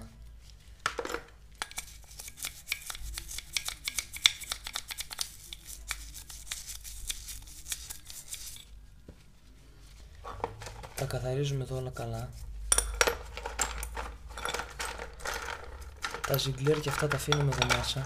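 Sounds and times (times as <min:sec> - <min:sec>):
toothbrush scrubbing metal: 0:01.6 - 0:08.7.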